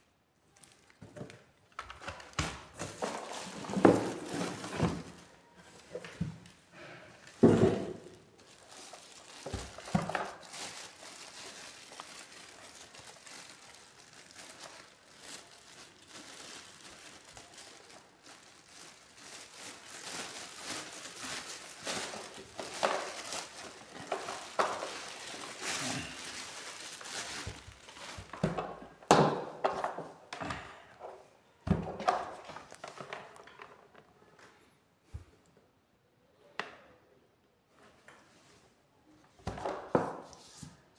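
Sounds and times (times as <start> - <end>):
plastic bag crinkling: 0.5 - 6.6, 7.2 - 30.1.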